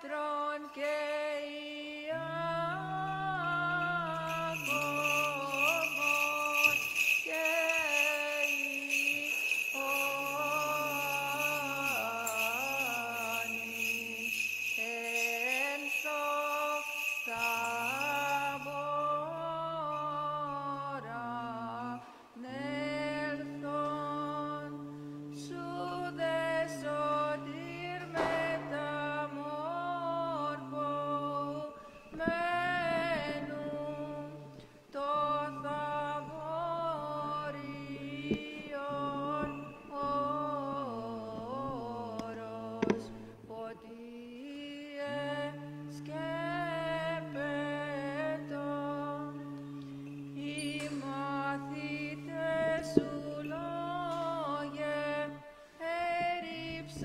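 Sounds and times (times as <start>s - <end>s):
cantor chanting: 0.0s - 57.0s
held drone note: 2.0s - 43.6s, 44.4s - 55.5s
small bells jingling: 2.5s - 43.6s, 44.5s - 57.0s.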